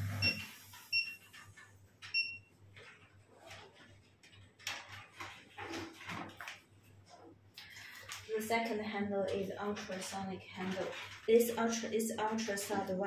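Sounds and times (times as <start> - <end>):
short electronic beeps: 0.1 - 1.2.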